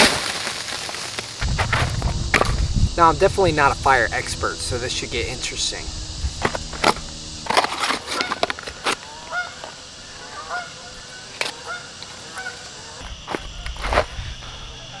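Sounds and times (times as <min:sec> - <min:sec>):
geese honking: 0:03.3 - 0:13.9.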